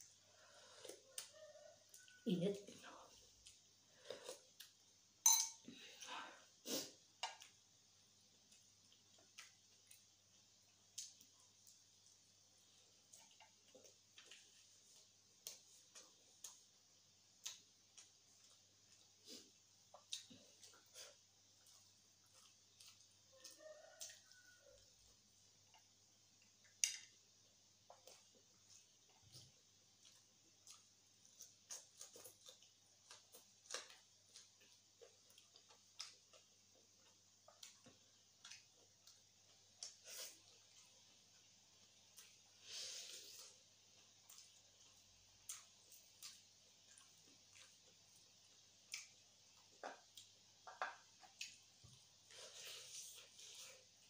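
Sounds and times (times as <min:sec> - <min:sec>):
person chewing with mouth clicks: 0:12.9 - 0:27.2, 0:27.8 - 0:42.5, 0:43.2 - 0:54.0.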